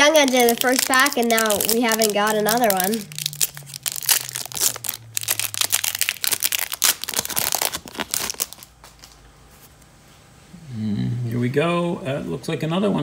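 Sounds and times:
foil wrapper crinkling and tearing: 0:00.0 - 0:09.2.

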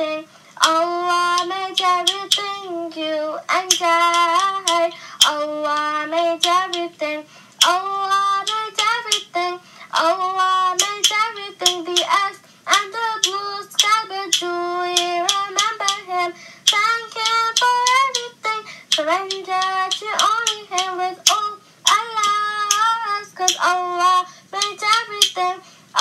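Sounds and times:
child singing in high voice: 0:00.0 - 0:26.0
sharp clap-like beats: 0:03.7 - 0:05.4.

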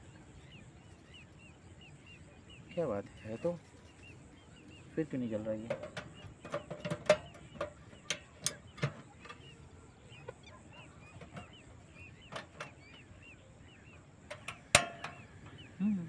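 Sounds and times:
camping stove clicks and knocks: 0:05.7 - 0:09.5, 0:12.3 - 0:13.0, 0:14.3 - 0:15.6.

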